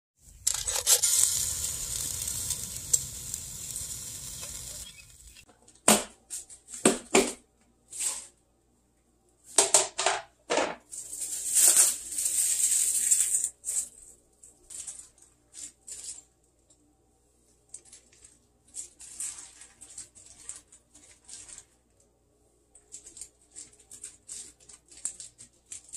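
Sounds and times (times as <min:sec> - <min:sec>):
cling film crinkling: 0:00.2 - 0:05.5, 0:17.7 - 0:21.9, 0:22.8 - 0:25.9
meat sizzling on a grill: 0:00.5 - 0:05.4.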